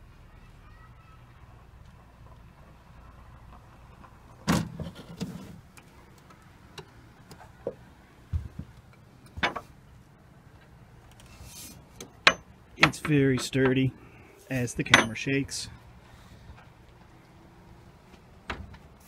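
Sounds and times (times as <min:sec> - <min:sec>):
sharp knocks and clunks: 0:09.3 - 0:09.7, 0:12.0 - 0:13.8, 0:14.8 - 0:15.3.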